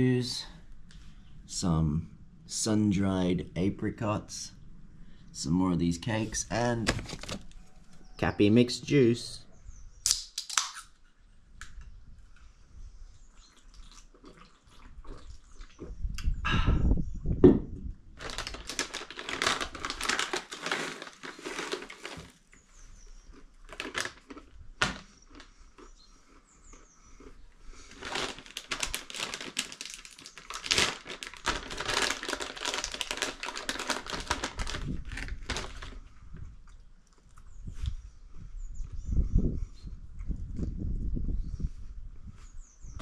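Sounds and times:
plastic packet crinkling: 6.8s - 7.6s, 18.2s - 22.5s, 23.6s - 25.5s, 27.8s - 36.1s.

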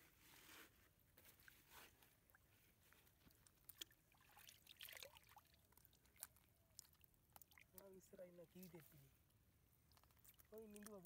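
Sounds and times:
small clicks and rustles: 0.6s - 4.0s
water dripping and splashing: 3.2s - 11.0s.

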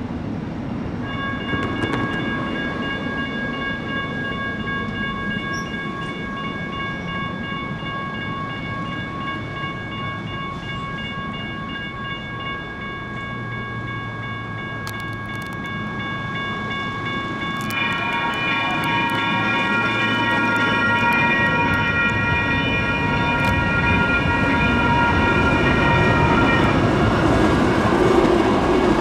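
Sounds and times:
train rumbling: 0.0s - 29.0s
railroad crossing bell ringing: 0.9s - 29.0s
metallic clicks from train: 1.0s - 7.2s, 14.5s - 24.2s
second crossing bell: 1.0s - 27.0s.

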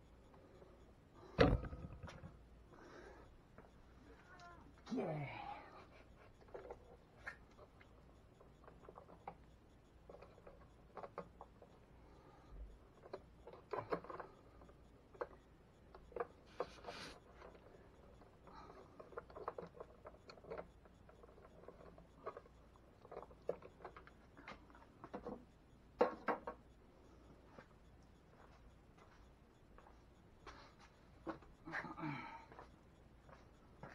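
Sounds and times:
electrical wires rustling and clicking: 12.6s - 26.8s.

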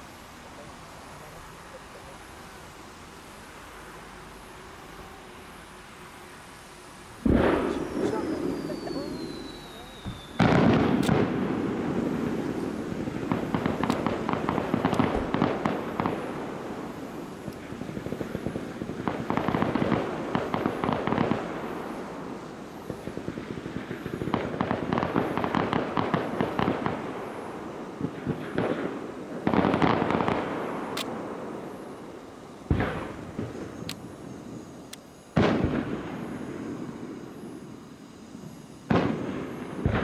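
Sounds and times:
crackling of exploding fireworks: 0.0s - 40.0s
loud firework shell burst: 7.2s - 16.6s, 35.3s - 37.1s.

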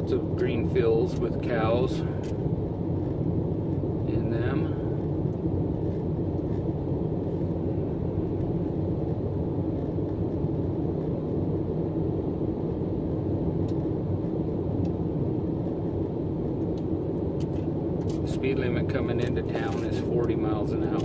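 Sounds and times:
car interior road noise: 0.0s - 21.0s.

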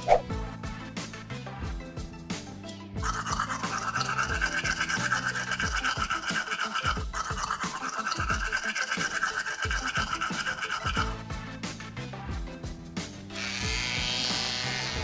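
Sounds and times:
music with thudding bass: 0.0s - 3.1s, 11.0s - 15.0s
toothbrush scrubbing metal: 3.0s - 11.2s.

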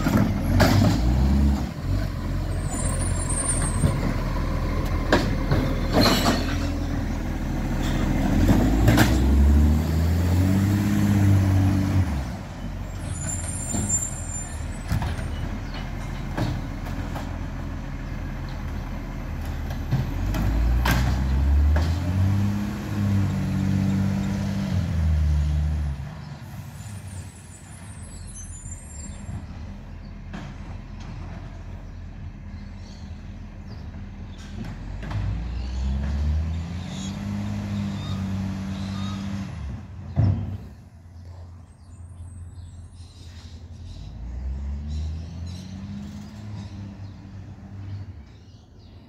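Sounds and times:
truck diesel engine pulling away: 0.0s - 49.0s.

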